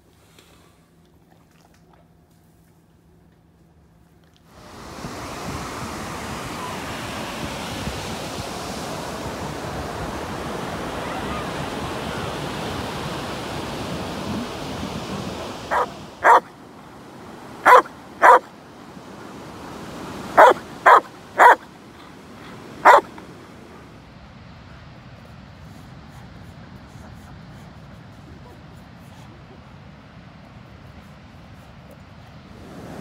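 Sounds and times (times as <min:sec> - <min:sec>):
surf: 0:04.5 - 0:24.0, 0:32.4 - 0:33.0
dog barking: 0:15.7 - 0:16.5, 0:17.6 - 0:18.5, 0:20.4 - 0:21.7, 0:22.8 - 0:23.2.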